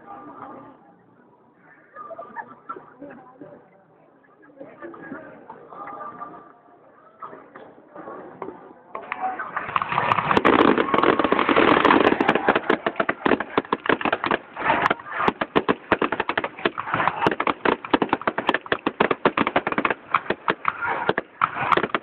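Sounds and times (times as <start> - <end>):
fireworks crackling: 9.5 - 22.0.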